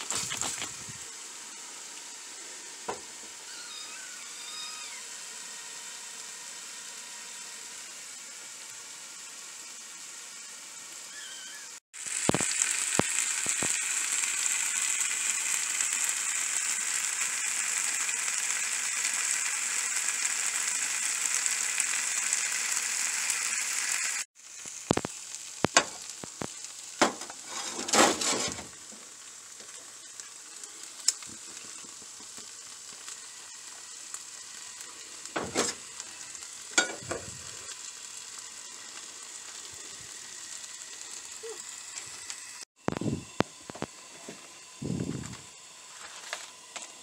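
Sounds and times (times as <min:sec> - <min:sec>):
steady hiss: 0:00.0 - 0:47.0
vegetables sizzling in frying pan: 0:00.0 - 0:47.0
pans clanking on stove grate: 0:36.8 - 0:37.2.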